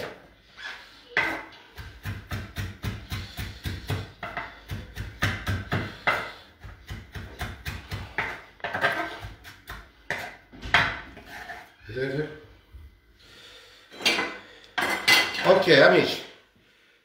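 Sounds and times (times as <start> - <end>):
knife chopping on wooden board: 1.2 - 11.0.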